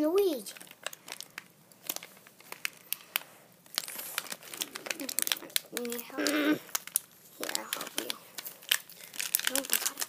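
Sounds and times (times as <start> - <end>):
foil packet crinkling: 0.3 - 10.0.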